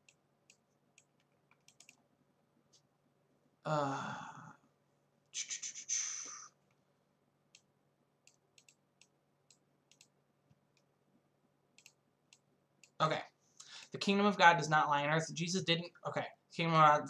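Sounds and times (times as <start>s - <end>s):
computer mouse clicks: 0.0s - 2.0s, 7.5s - 10.9s, 11.8s - 13.0s
man sighing: 3.7s - 4.6s, 5.9s - 6.5s.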